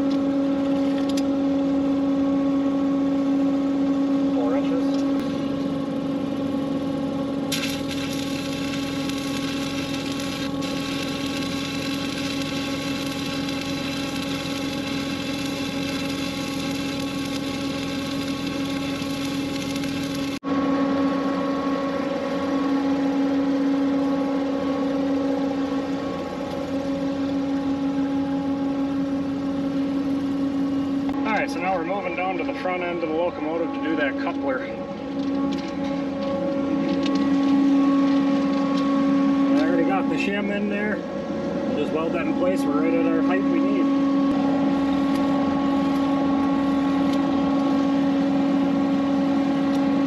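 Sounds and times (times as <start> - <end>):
engine humming: 4.8 - 50.0
arc welding crackling hiss: 7.5 - 20.4.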